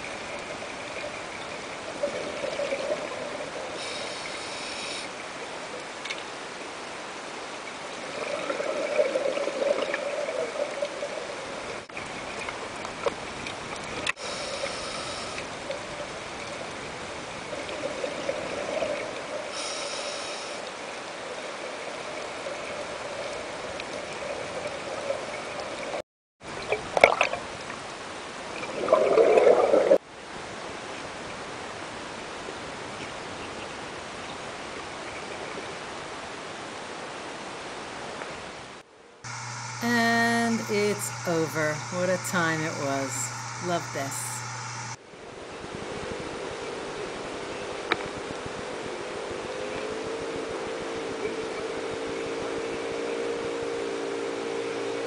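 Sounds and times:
underwater bubbling hiss: 2.0s - 5.3s, 14.2s - 15.8s, 17.6s - 21.0s.

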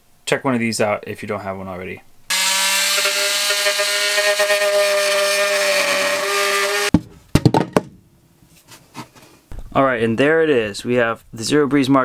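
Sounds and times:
oscillating tool buzzing: 2.3s - 6.9s
knocks on wood: 6.9s - 8.0s.

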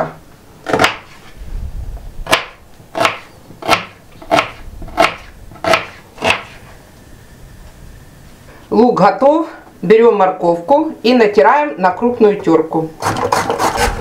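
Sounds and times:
knife chopping onion on board: 0.7s - 1.1s, 2.3s - 6.6s.

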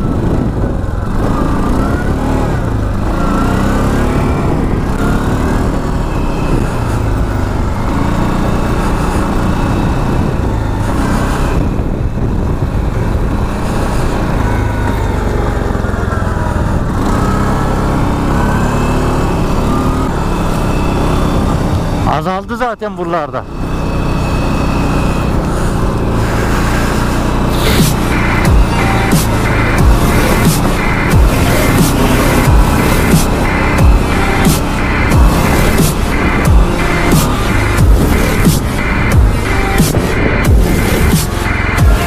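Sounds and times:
atv engine revving: 0.0s - 42.0s
low rumble: 25.4s - 42.0s.

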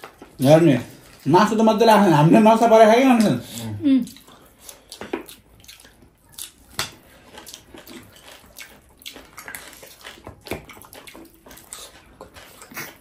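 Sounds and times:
wet chewing and mouth smacking: 3.1s - 13.0s.

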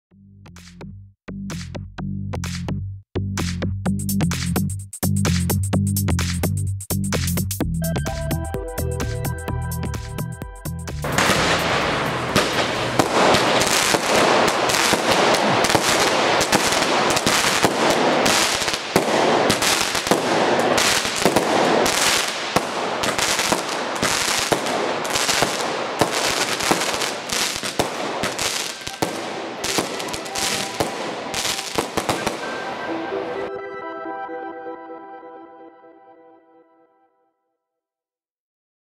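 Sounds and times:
fireworks launching and bursting: 11.0s - 33.5s
fireworks hissing and crackling: 11.1s - 33.4s.

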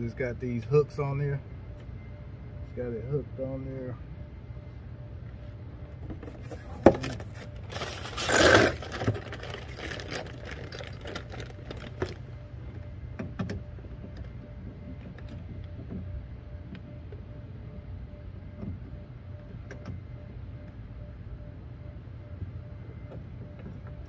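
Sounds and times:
rattling metal scrape: 6.4s - 11.4s.

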